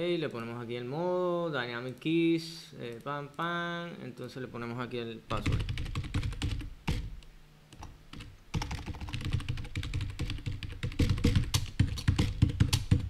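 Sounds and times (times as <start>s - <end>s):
fast typing on keyboard: 5.3s - 7.1s, 7.8s - 13.0s.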